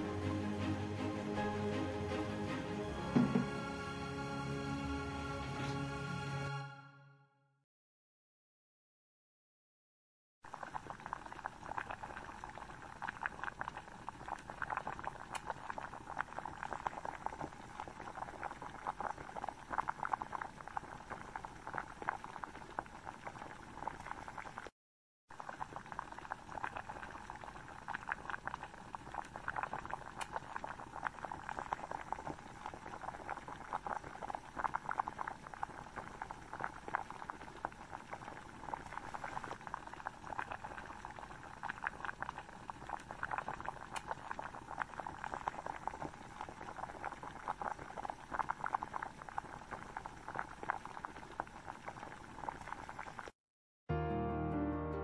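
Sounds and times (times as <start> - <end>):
background music: 0.0 - 7.3, 53.9 - 55.0
noodles boiling in water: 10.4 - 24.7, 25.3 - 53.4.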